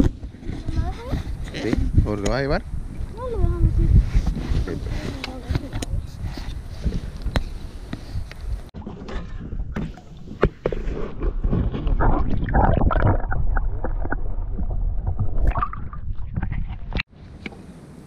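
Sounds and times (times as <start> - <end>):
underwater gurgling and sloshing: 8.7 - 17.1.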